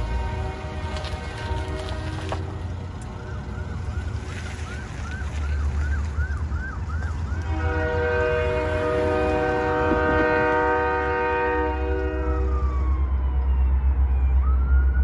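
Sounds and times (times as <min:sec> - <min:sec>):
locomotive air horn: 0:00.0 - 0:02.8, 0:07.4 - 0:12.8.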